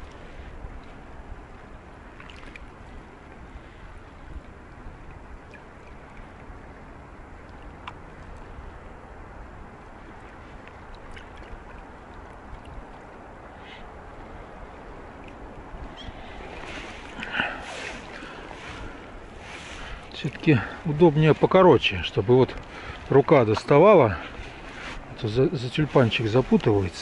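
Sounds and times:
water lapping around legs: 0.0s - 8.9s, 9.5s - 27.0s
faint light ticks: 7.4s - 8.5s.

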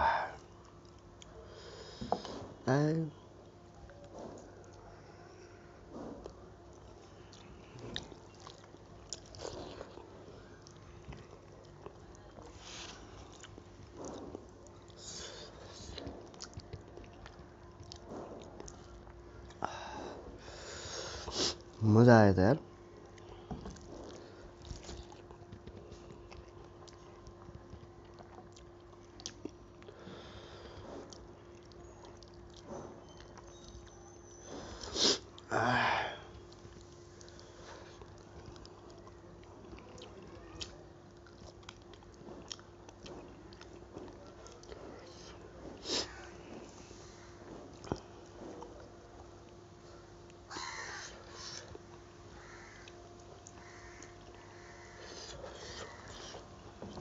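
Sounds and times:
faint steady hum: 0.0s - 57.0s
chewing and mouth sounds: 6.0s - 19.6s, 23.1s - 30.0s, 30.8s - 34.0s, 36.3s - 46.8s, 47.5s - 49.6s.

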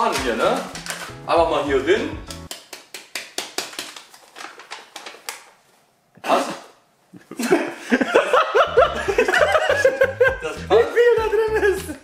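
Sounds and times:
background music with low beat: 0.0s - 2.5s, 8.6s - 12.0s
person sneezing: 6.2s - 6.8s
person laughing: 7.2s - 12.0s.

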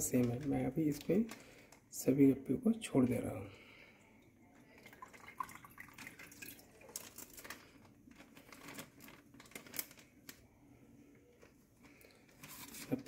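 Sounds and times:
plastic bag crinkling: 0.0s - 2.1s, 4.7s - 10.6s, 11.2s - 13.0s
water trickling and dripping: 4.2s - 7.2s.

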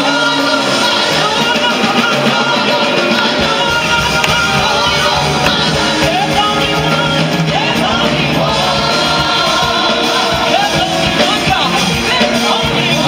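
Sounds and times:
band playing: 0.0s - 13.0s
choir singing worship song: 0.0s - 13.0s.

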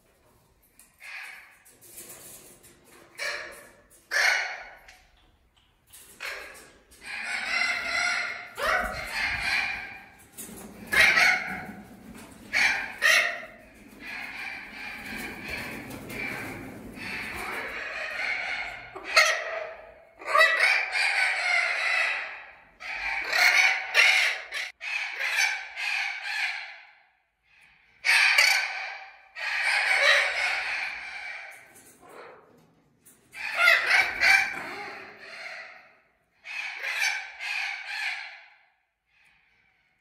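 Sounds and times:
macaws calling: 6.2s - 10.2s, 33.4s - 38.6s.

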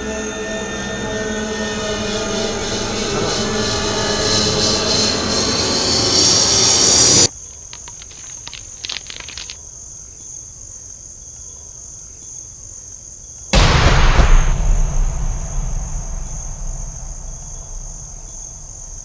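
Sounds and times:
loud rising high whine: 0.0s - 7.3s, 13.6s - 19.0s
sudden loud burst of noise: 0.0s - 7.3s, 13.6s - 19.0s
crickets chirring: 0.6s - 13.4s, 16.2s - 19.0s.

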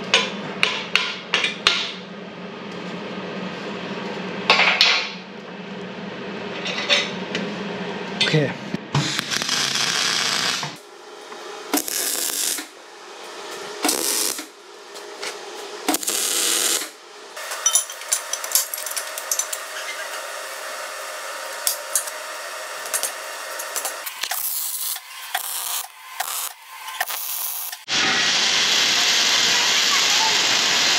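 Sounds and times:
power tool bursts: 9.0s - 15.1s, 15.8s - 30.9s.

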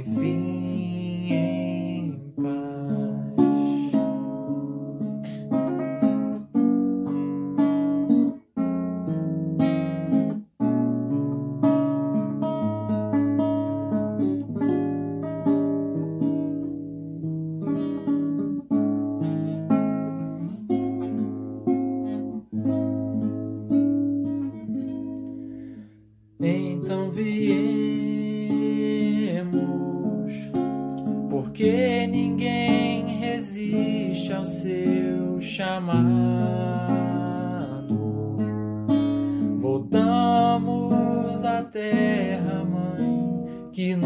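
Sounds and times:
man singing: 0.0s - 4.7s, 26.4s - 38.6s, 39.4s - 44.0s
classical guitar fingerpicked arpeggios: 0.0s - 44.0s.

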